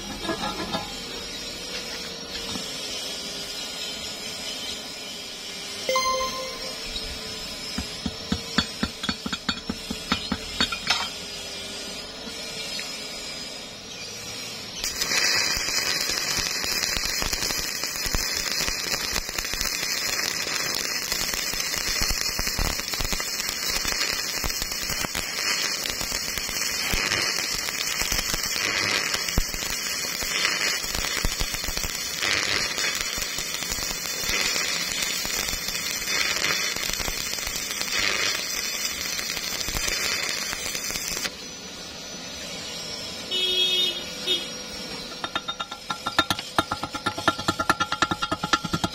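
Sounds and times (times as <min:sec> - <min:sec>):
welding arc crackling: 0:07.8 - 0:11.2, 0:14.2 - 0:41.4, 0:43.3 - 0:48.9.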